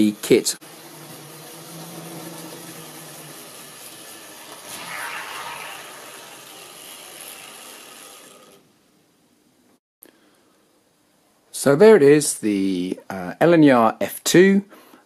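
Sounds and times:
model train motor hum: 0:00.0 - 0:08.8.

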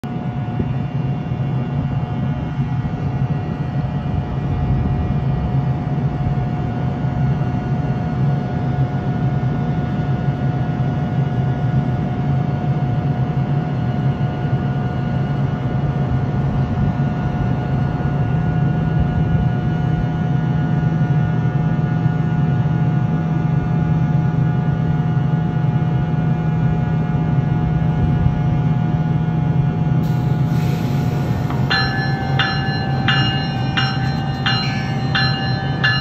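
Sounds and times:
electric locomotive idling hum: 0:00.1 - 0:36.0
constant whine: 0:30.0 - 0:36.0.

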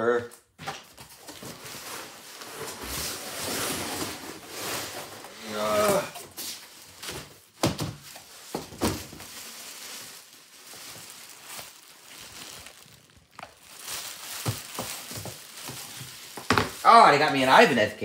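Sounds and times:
plastic wrapping rustling: 0:00.9 - 0:17.8
cardboard box knocking on wooden floor: 0:16.4 - 0:16.8.

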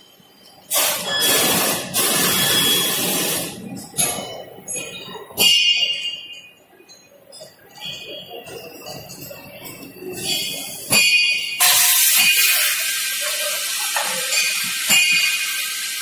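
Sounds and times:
compressed air hissing: 0:00.7 - 0:03.6, 0:11.6 - 0:16.0
metallic clinks: 0:03.8 - 0:12.8, 0:13.8 - 0:15.7
ringing metal clank: 0:03.9 - 0:12.7, 0:13.9 - 0:15.6.

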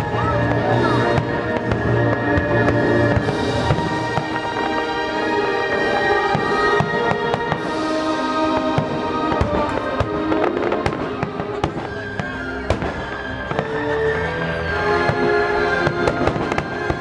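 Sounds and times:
fireworks bursting: 0:00.0 - 0:17.0
music: 0:00.0 - 0:17.0.

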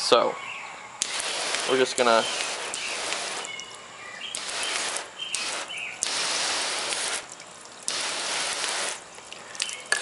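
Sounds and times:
hose spraying water on car: 0:01.0 - 0:03.7, 0:04.3 - 0:09.2.

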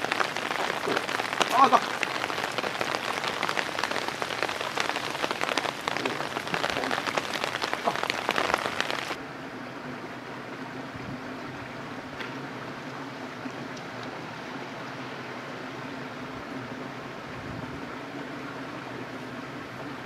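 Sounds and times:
dense crackling patter of ticks: 0:00.0 - 0:09.2
steady hiss: 0:00.0 - 0:09.2.

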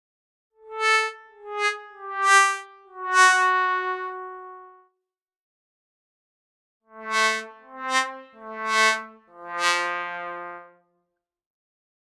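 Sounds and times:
sad trombone sound effect: 0:00.8 - 0:04.8, 0:06.9 - 0:10.7.

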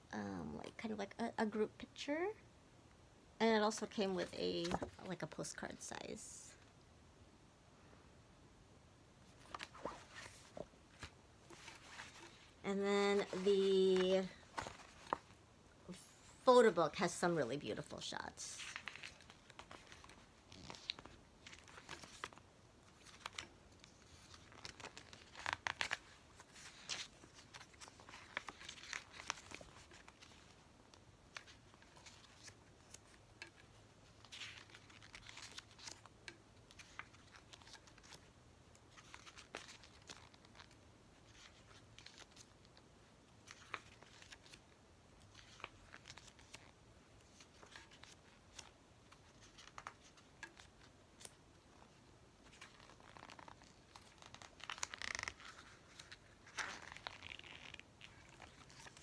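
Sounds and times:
book pages turning: 0:04.2 - 0:05.4, 0:09.3 - 0:15.4, 0:18.6 - 0:42.8, 0:43.4 - 0:59.0
paper rustling: 0:09.3 - 0:12.6, 0:13.2 - 0:15.4, 0:18.6 - 0:30.6, 0:31.3 - 0:36.1, 0:36.7 - 0:38.3, 0:43.4 - 0:44.6, 0:45.3 - 0:59.0.

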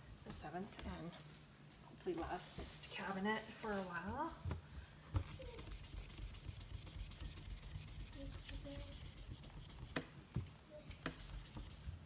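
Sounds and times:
eraser rubbing strokes: 0:05.3 - 0:10.0, 0:11.0 - 0:12.0.

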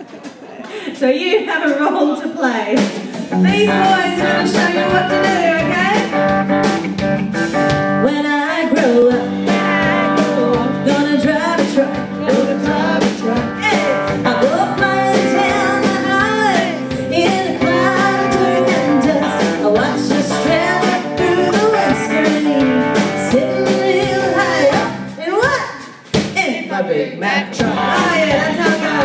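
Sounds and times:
drum kit beat: 0:00.0 - 0:29.0
woman singing into microphone: 0:03.2 - 0:06.2, 0:08.0 - 0:25.6, 0:27.4 - 0:29.0
electric bass guitar: 0:03.2 - 0:08.2, 0:08.9 - 0:25.2, 0:27.6 - 0:29.0.

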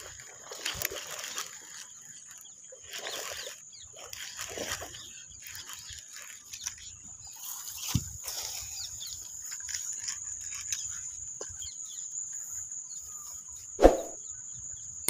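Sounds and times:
rustling in long grass: 0:00.0 - 0:11.5
insects droning: 0:00.0 - 0:15.0.

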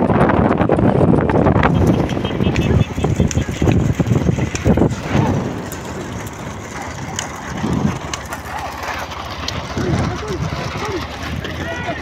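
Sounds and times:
road rumble: 0:00.0 - 0:12.0
wind: 0:00.0 - 0:12.0.

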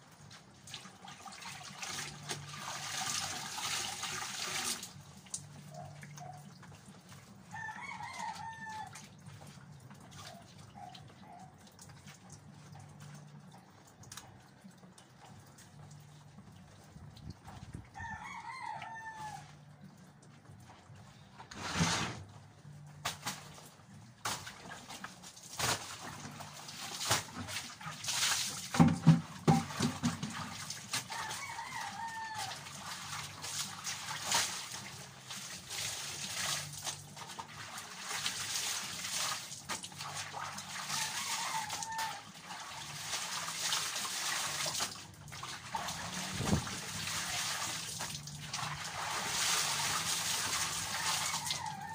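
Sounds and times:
water sloshing and splashing: 0:00.0 - 0:51.9
knocks and clatter of basin: 0:28.5 - 0:31.4.

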